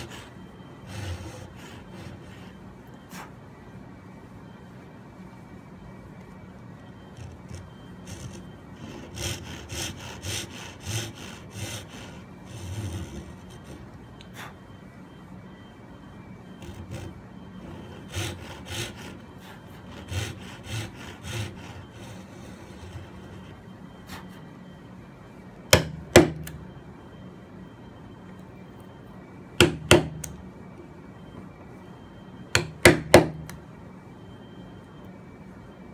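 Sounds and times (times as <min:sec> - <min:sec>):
pull saw cutting wood: 0:00.0 - 0:02.5, 0:07.2 - 0:13.9, 0:16.6 - 0:23.4
hammer striking chisel into wood: 0:25.7 - 0:26.5, 0:29.6 - 0:30.3, 0:32.5 - 0:33.6.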